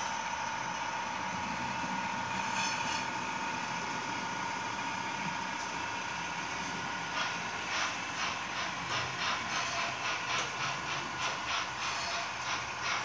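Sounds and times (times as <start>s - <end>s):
steady background hum: 0.0s - 13.0s
model train wheels clicking: 7.1s - 13.0s.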